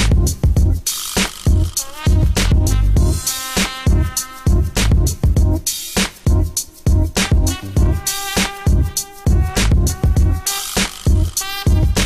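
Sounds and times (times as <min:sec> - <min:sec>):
electronic hip-hop beat: 0:00.0 - 0:12.0
heavy bass drum hits: 0:01.5 - 0:03.3, 0:03.9 - 0:05.6, 0:06.3 - 0:08.1, 0:08.7 - 0:10.4.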